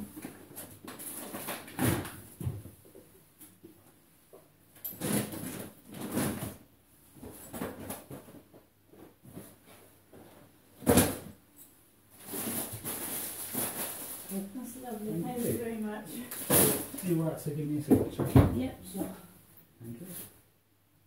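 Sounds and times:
groceries and crates knocking: 17.8 - 18.8.

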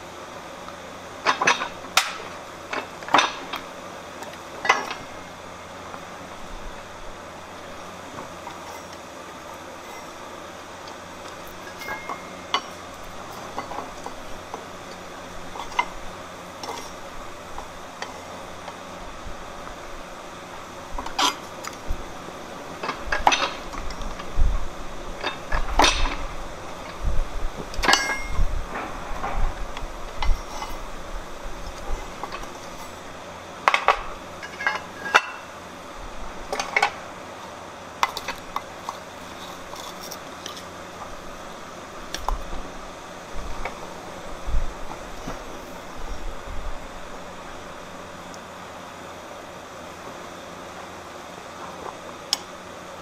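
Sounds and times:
metallic clinks and knocks: 11.6 - 12.8, 27.8 - 29.6.

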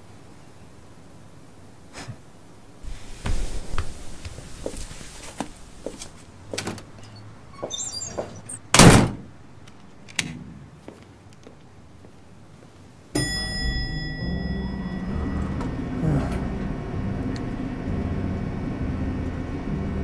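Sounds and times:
footsteps: 2.8 - 8.6, 10.3 - 12.8
door slamming shut: 7.6 - 9.3.

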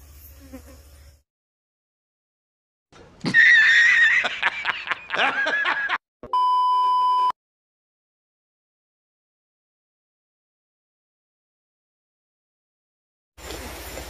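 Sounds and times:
man cackling laughter: 3.2 - 6.0
electronic beep: 6.3 - 7.4.

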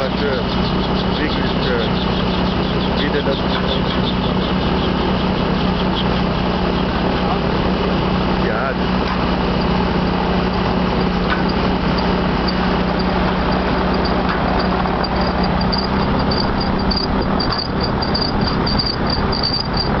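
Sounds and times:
aircraft engine drone: 0.0 - 20.0
wind noise: 8.9 - 20.0.

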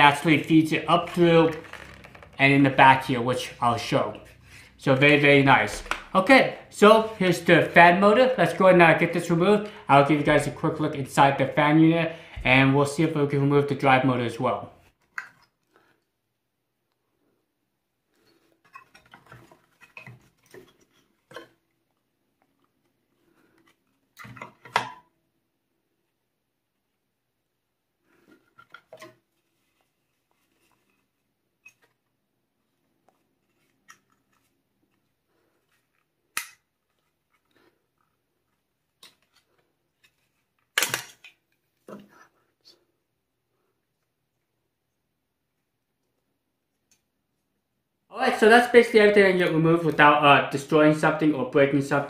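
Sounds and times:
plastic parts clicking and scraping: 18.2 - 21.6, 28.2 - 29.3.

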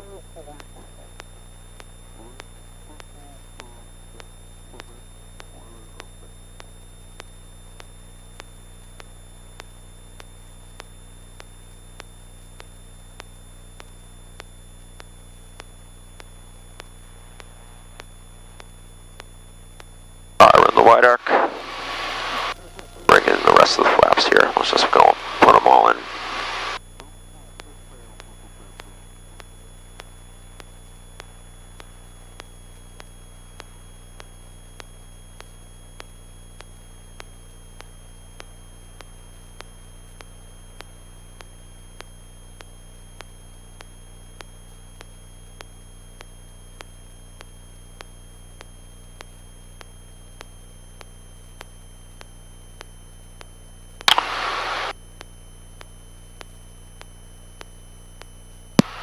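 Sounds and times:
loud burst of static: 20.4 - 26.8, 54.1 - 54.9, 58.8 - 59.0.

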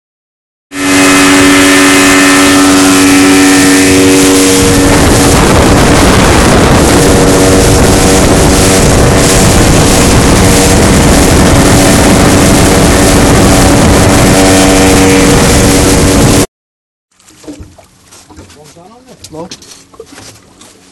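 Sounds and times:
outboard motor running hard: 0.7 - 16.5
water rushing: 0.8 - 16.5
wind on microphone: 0.8 - 16.5.

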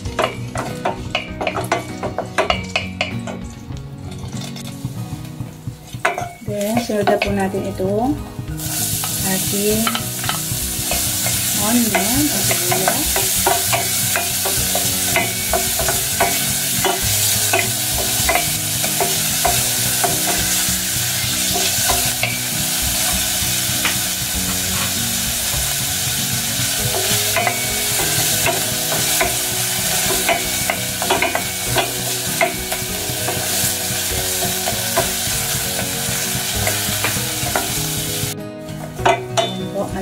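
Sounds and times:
garlic and onion sizzling in oil: 0.0 - 40.0.

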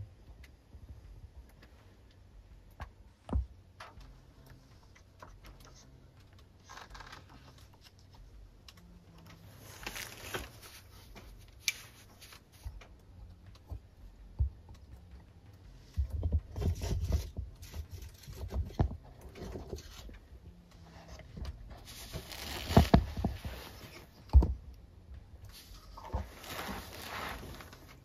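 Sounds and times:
heavy bumps and rubbing: 21.6 - 24.6.

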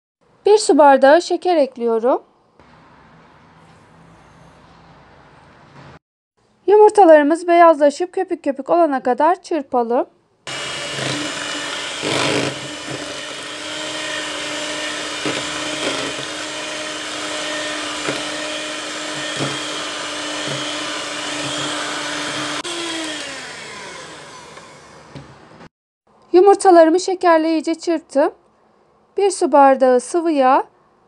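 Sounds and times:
electric hand mixer hum: 10.5 - 25.4.

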